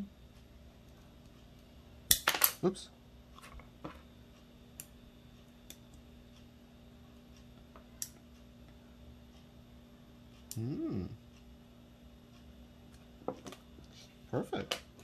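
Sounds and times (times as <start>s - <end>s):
faint clicks of small parts: 7.3s - 9.4s.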